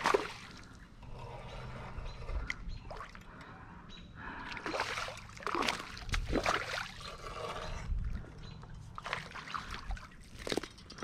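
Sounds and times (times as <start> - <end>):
creek water splashing: 0.0 - 0.9, 4.4 - 7.5, 8.8 - 10.6.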